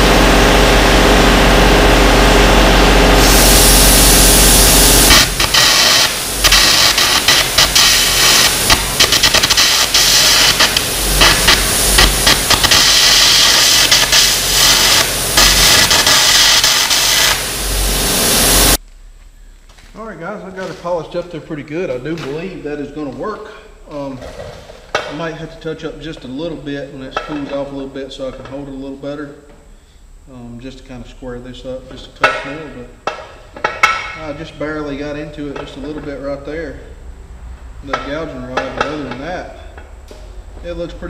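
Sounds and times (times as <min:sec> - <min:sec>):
welder droning: 0:00.0 - 0:18.9
arc gouging crackling hiss: 0:03.2 - 0:41.0.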